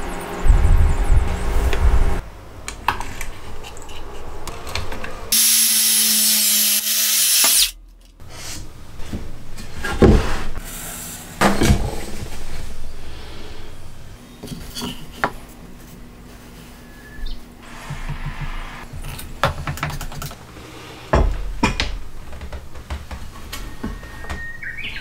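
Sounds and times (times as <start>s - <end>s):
circular saw cutting board: 5.3s - 7.8s.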